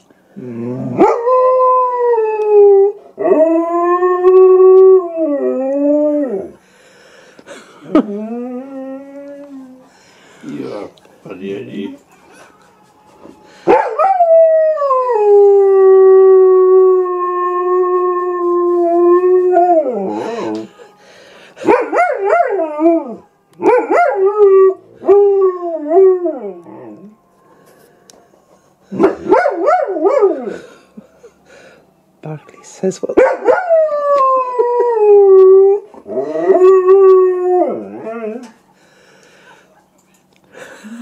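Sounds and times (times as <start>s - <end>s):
dog howling: 13.2s - 21.0s, 21.6s - 27.2s.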